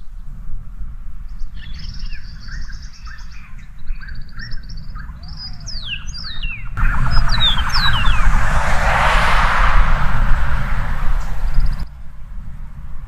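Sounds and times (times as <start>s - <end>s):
meadowlark singing: 1.4s - 8.3s.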